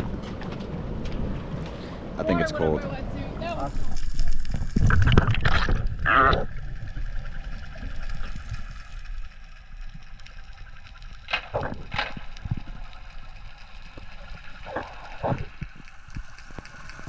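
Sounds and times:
dull underwater rush: 0.0s - 17.0s
water splashing and sloshing: 0.0s - 17.0s
underwater bubbling bursts: 3.8s - 17.0s.

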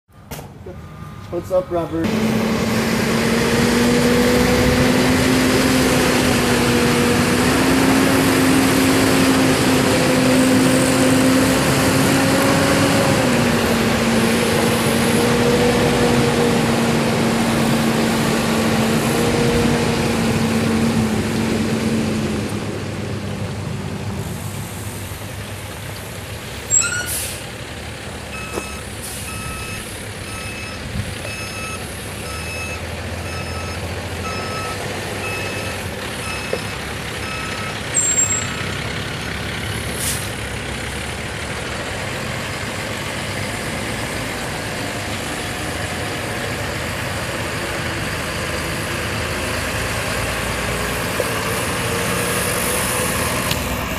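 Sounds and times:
backup alarm beeping: 0.1s - 2.0s, 28.3s - 38.7s
diesel truck engine droning: 0.1s - 53.9s
air brakes hissing: 26.7s - 27.5s, 28.8s - 30.0s, 39.9s - 40.4s.

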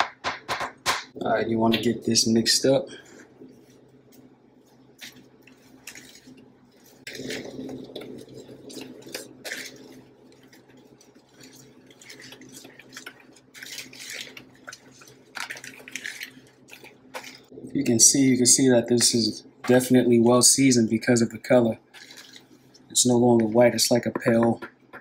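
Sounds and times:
flour mixed by hand swishing: 3.5s - 17.6s.

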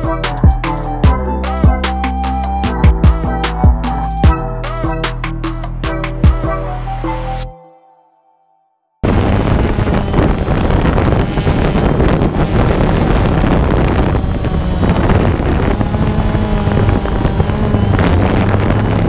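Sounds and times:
drone motors humming: 0.0s - 6.6s, 9.0s - 19.0s
wind noise on microphone: 9.0s - 19.0s.

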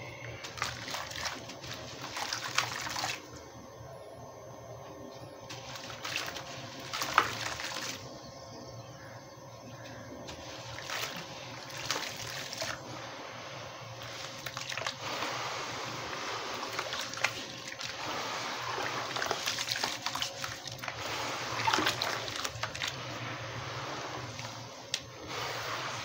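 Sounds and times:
wet cement crackling: 0.2s - 3.3s, 5.5s - 8.2s, 10.2s - 13.2s, 14.0s - 26.0s
water splashing and sloshing: 0.2s - 3.4s, 5.5s - 8.2s, 9.8s - 26.0s.

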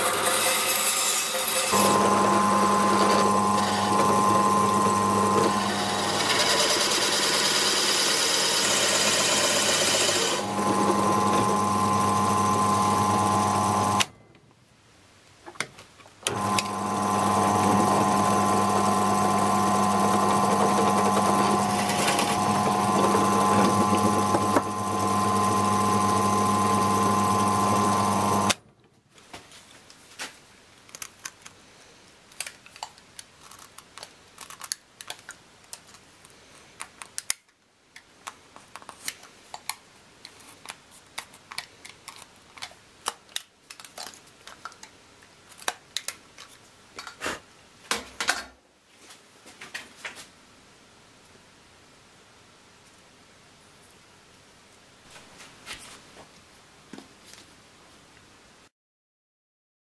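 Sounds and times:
drill press boring into wood: 0.0s - 14.1s, 16.3s - 28.6s.

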